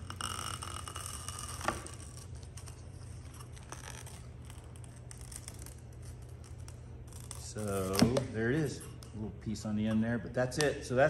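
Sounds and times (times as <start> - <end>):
plastic film crackling: 0.0 - 8.3
steady low hum: 0.0 - 11.0.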